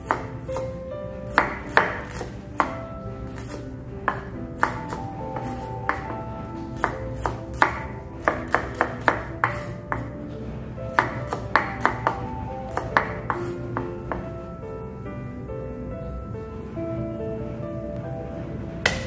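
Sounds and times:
knife chopping on wooden board: 0.0s - 0.6s, 1.3s - 6.1s, 6.8s - 10.1s, 10.9s - 14.2s
background music: 0.0s - 19.0s.

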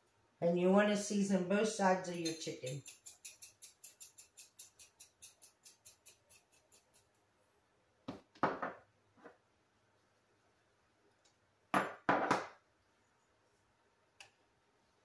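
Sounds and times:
glass shaker rattling: 2.1s - 7.1s.

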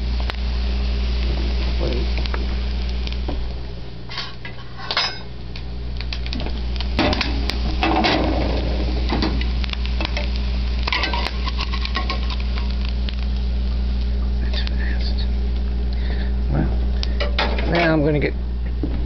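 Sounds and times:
utensil scraping frying pan: 4.1s - 5.3s, 7.0s - 12.8s.

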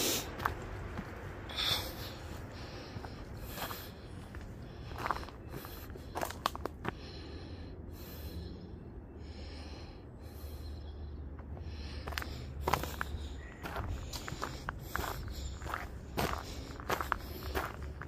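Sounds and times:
person breathing: 0.0s - 0.6s, 1.2s - 18.0s
low rumble of traffic: 0.0s - 18.0s
footsteps crunching on gravel: 0.2s - 7.0s, 12.0s - 18.0s.

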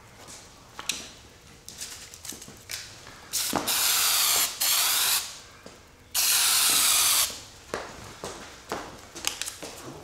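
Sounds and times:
aerosol can spraying: 3.4s - 5.3s, 6.2s - 7.3s.

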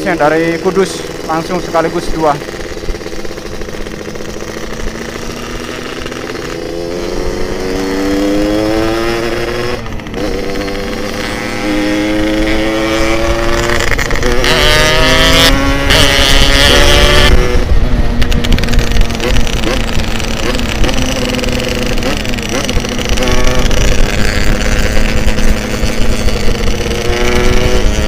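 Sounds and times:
motorcycle engine accelerating: 0.0s - 28.0s
wind rush on microphone: 15.5s - 20.9s.

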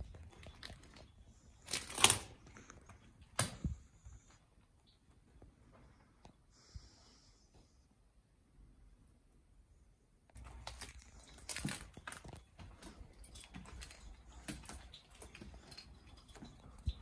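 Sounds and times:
footsteps crunching over debris: 10.4s - 17.0s.

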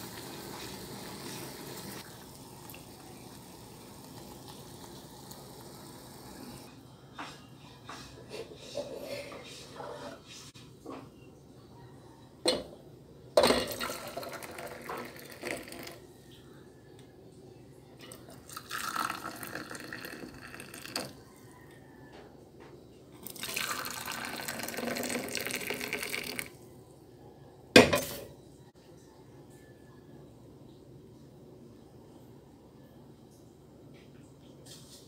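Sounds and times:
tea pouring into mugs: 0.0s - 6.7s, 13.7s - 16.0s, 18.0s - 21.3s, 23.2s - 26.6s.

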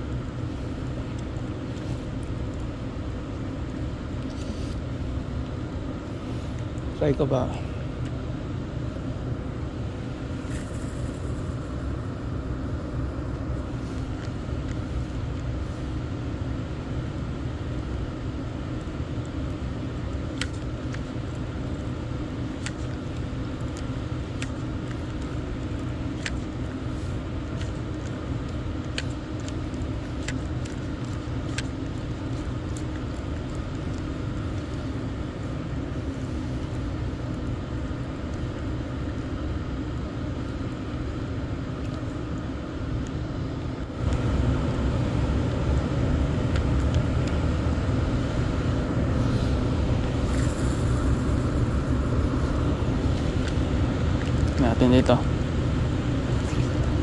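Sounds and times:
constant hum: 0.0s - 57.0s
road traffic rumble: 0.0s - 57.0s.

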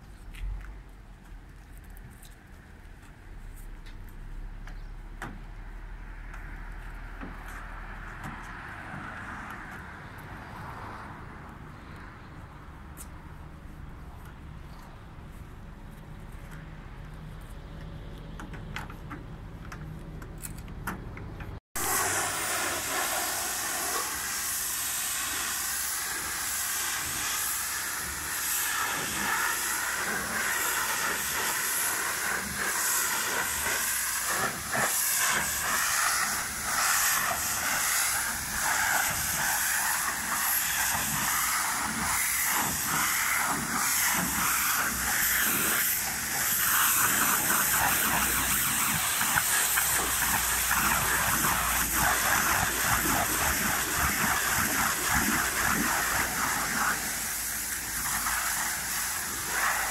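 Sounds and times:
pressure washer spraying water: 21.8s - 59.9s.

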